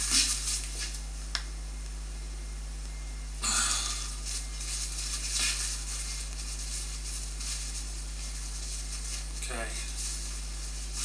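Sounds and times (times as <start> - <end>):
paper towel rustling: 0.0 - 1.0, 4.0 - 11.0
low electrical hum: 0.0 - 11.0.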